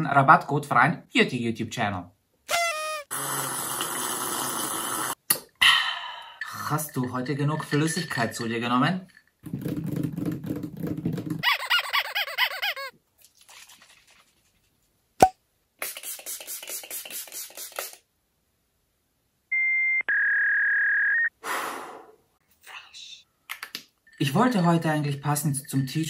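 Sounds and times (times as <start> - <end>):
spray bottle hissing: 15.8 - 18.0.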